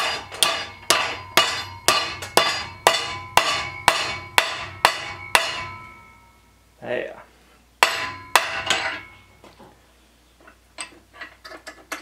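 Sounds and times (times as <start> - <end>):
hammer striking metal: 0.0 - 6.5, 7.8 - 9.4.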